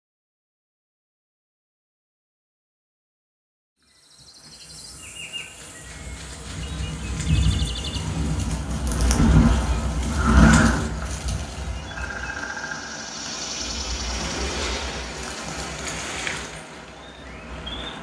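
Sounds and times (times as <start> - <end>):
whooshing swells: 5.8 - 18.0
deep rumbling bass: 6.4 - 16.1
high chirps: 11.5 - 15.2.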